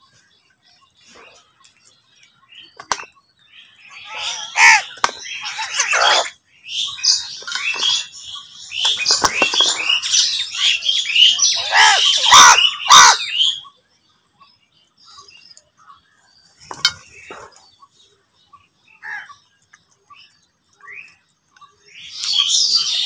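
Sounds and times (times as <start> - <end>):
crows cawing: 4.0 - 6.3, 11.4 - 13.3, 19.0 - 19.4.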